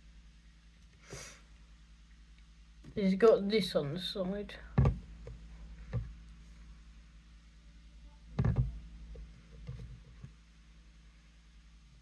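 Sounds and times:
low steady hum: 0.0s - 12.0s
plastic bottle handling thumps: 4.8s - 5.1s, 8.4s - 8.8s.

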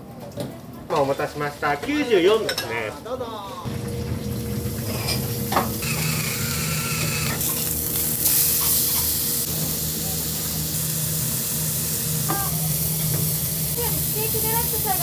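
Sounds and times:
meat sizzling in frying pan: 4.2s - 15.0s.

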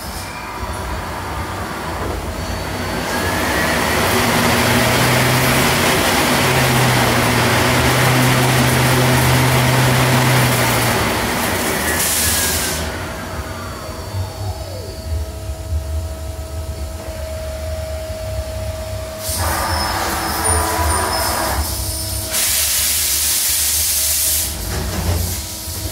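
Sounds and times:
lathe spindle whine: 0.0s - 22.3s
hiss of coolant spray: 11.5s - 12.9s, 19.2s - 25.9s.

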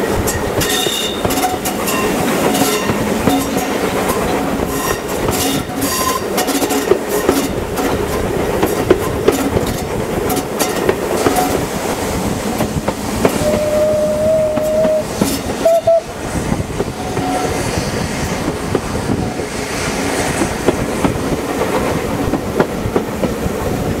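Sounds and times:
wheels clicking over rail joints: 0.0s - 17.6s
steam train running: 0.0s - 24.0s
locomotive whistle: 13.3s - 16.2s, 16.9s - 17.6s.

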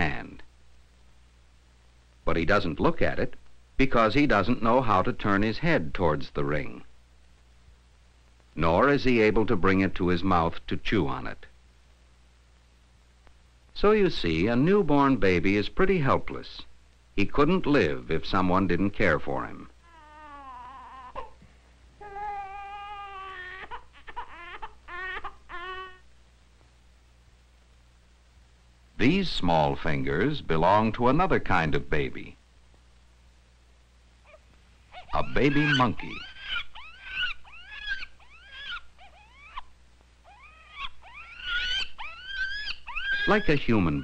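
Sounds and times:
baby crying: 19.8s - 21.4s, 22.0s - 26.0s, 34.2s - 44.0s
infant monkey squealing: 22.0s - 26.0s, 34.3s - 44.0s.

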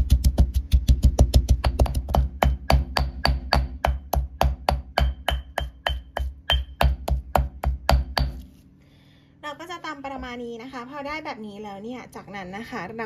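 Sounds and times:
stone pestle pounding in mortar: 0.0s - 8.5s.

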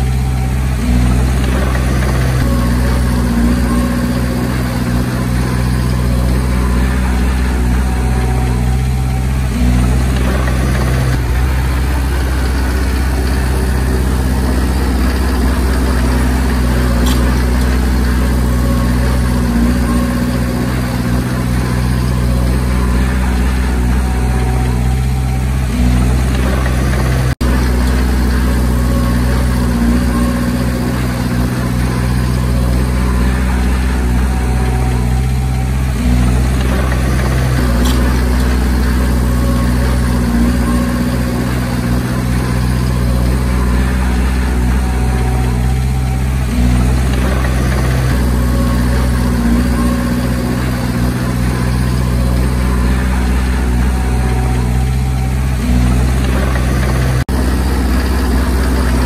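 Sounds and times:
bulldozer diesel engine running: 0.0s - 59.0s.

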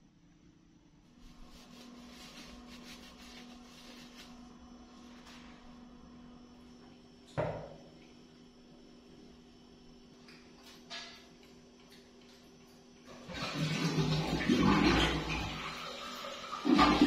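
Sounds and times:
steady low hum: 0.0s - 13.3s.

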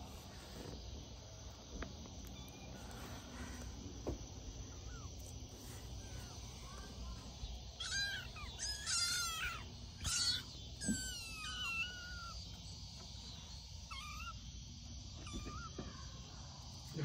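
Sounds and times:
kittens mewing: 4.5s - 13.0s, 13.6s - 17.0s.

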